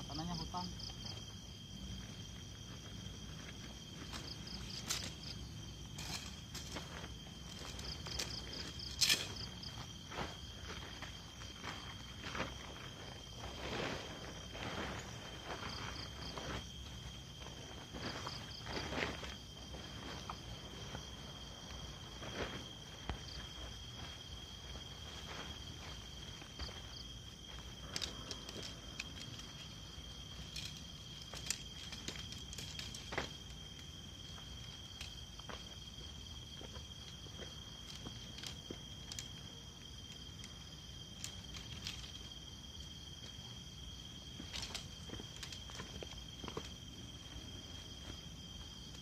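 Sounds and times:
crickets chirping: 0:00.0 - 0:49.0
insects trilling: 0:00.0 - 0:49.0
tent fabric rustling: 0:02.8 - 0:33.4.

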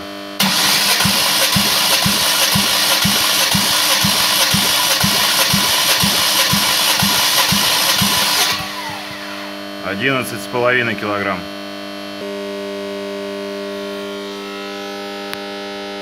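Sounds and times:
engine starter cranking: 0:00.4 - 0:09.6.

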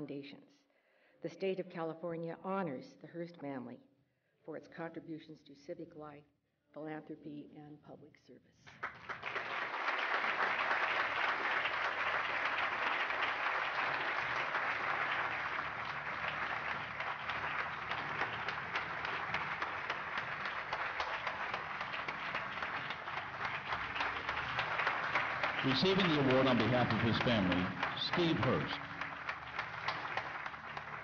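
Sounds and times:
audience applauding: 0:08.8 - 0:31.0.

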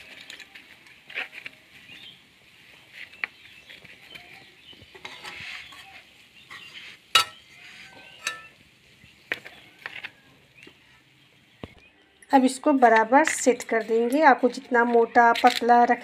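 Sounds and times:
spatula scraping biscuit mixture: 0:00.0 - 0:08.3.

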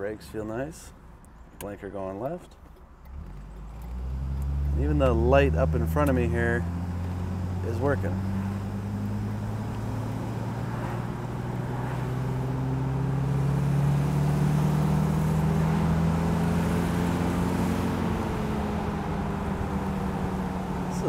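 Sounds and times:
car engine running: 0:02.6 - 0:21.0.

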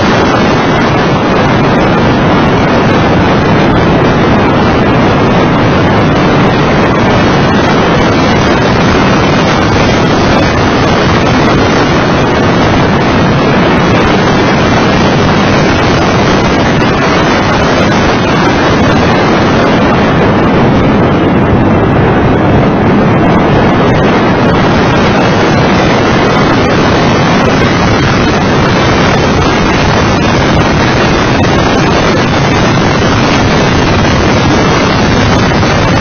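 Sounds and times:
wind roar on microphone: 0:00.0 - 0:36.0.

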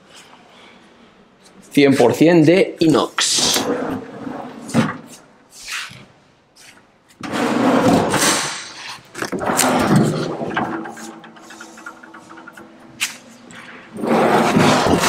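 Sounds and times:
drawers sliding on runners: 0:03.3 - 0:05.9, 0:07.2 - 0:15.0.

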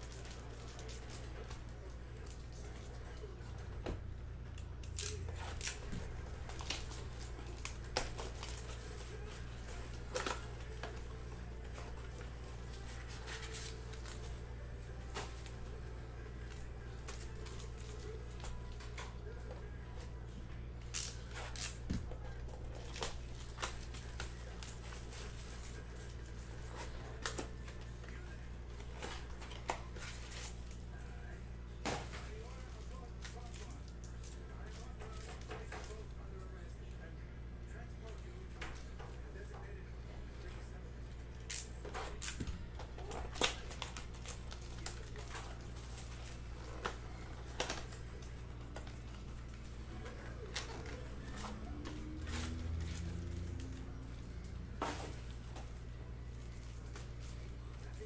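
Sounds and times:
plastic wrap tearing and crinkling: 0:00.0 - 0:03.4, 0:04.8 - 0:19.4, 0:41.3 - 0:58.0.

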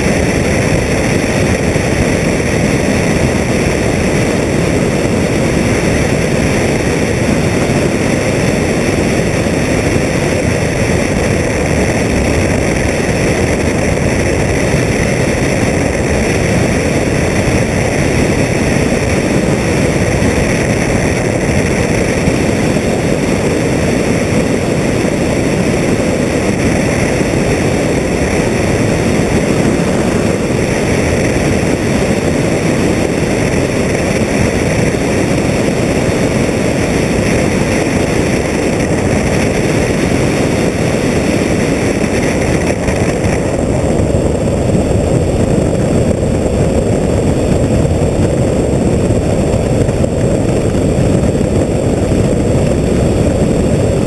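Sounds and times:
heavy wind rush: 0:00.0 - 0:54.0
plane engine and propeller: 0:00.0 - 0:54.0.

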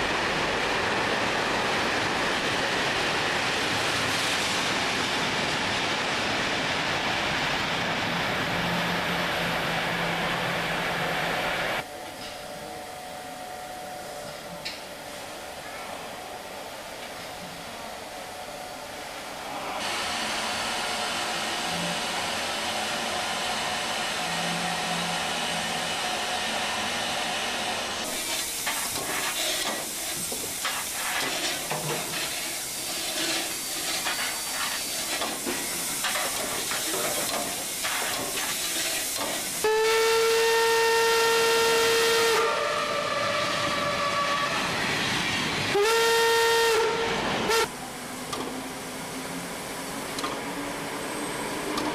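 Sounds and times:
steam locomotive hissing steam: 0:00.0 - 0:51.9
loud train signal blasts: 0:45.7 - 0:47.8.

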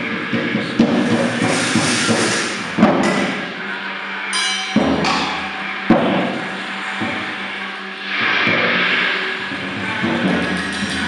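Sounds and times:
steady low hum: 0:00.0 - 0:11.0
electronic noise and distortion: 0:04.8 - 0:11.0.

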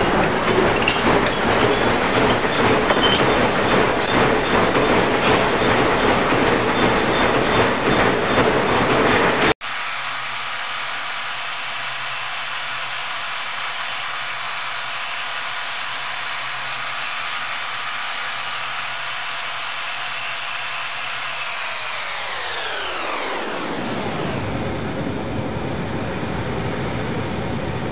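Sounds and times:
metal lathe cutting metal: 0:00.0 - 0:10.4.

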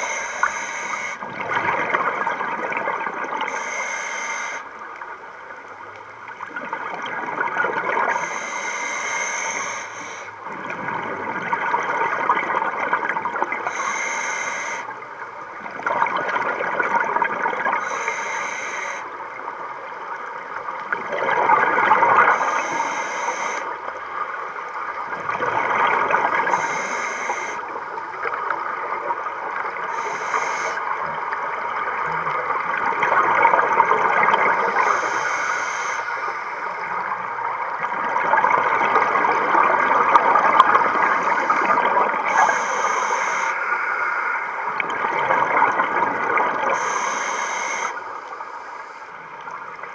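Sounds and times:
scuba regulator hiss: 0:00.0 - 0:01.2, 0:03.5 - 0:04.6, 0:08.1 - 0:10.3, 0:13.7 - 0:14.9, 0:17.8 - 0:19.1, 0:22.3 - 0:23.7, 0:26.5 - 0:27.6, 0:29.9 - 0:30.8, 0:34.6 - 0:37.0, 0:41.1 - 0:44.3, 0:46.7 - 0:48.0.

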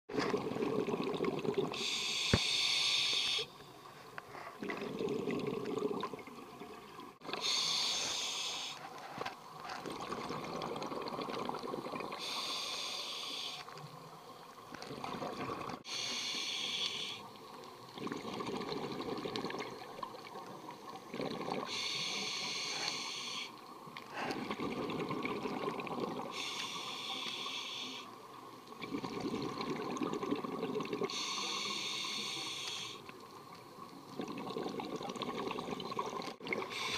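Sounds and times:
bubbling exhale underwater: 0:00.1 - 0:02.6, 0:04.5 - 0:07.9, 0:09.6 - 0:12.6, 0:14.8 - 0:16.1, 0:17.9 - 0:21.9, 0:24.1 - 0:26.5, 0:28.8 - 0:31.2, 0:34.1 - 0:36.9
regulator hissing inhale: 0:01.8 - 0:04.6, 0:07.4 - 0:09.1, 0:12.2 - 0:13.8, 0:15.8 - 0:17.3, 0:21.7 - 0:24.4, 0:26.3 - 0:28.2, 0:31.1 - 0:33.1, 0:36.6 - 0:36.9.

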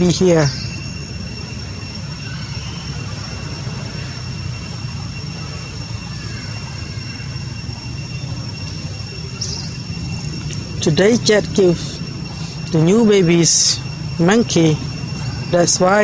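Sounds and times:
high-pitched tones: 0:00.0 - 0:16.0
low rumble: 0:07.5 - 0:16.0.

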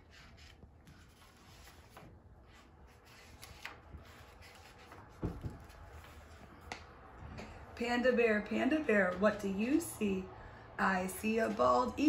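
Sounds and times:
book pages turning: 0:00.0 - 0:06.9.

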